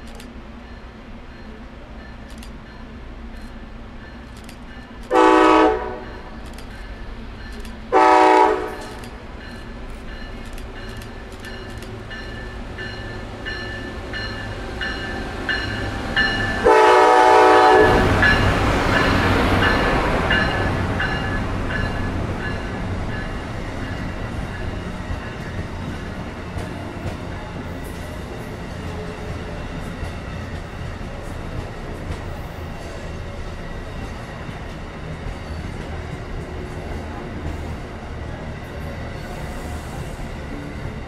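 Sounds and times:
train passing rushing: 0.0 - 41.0
train horn blasts: 5.1 - 6.4, 7.9 - 9.0, 16.5 - 18.4.

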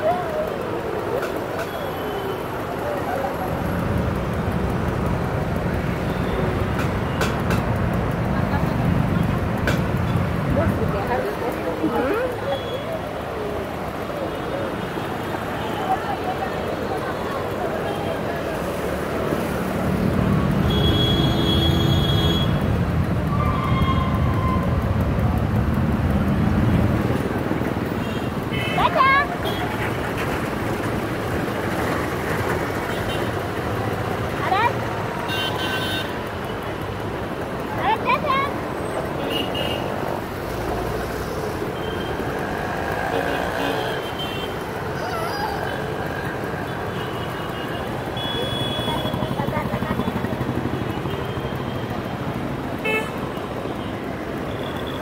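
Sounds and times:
tyres rumbling on pavement: 0.0 - 35.3.

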